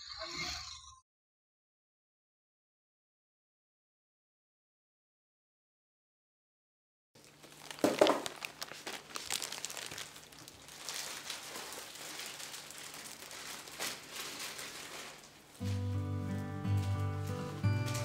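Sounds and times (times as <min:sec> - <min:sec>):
plastic bag crinkling: 0:07.2 - 0:18.0
music: 0:15.6 - 0:18.0.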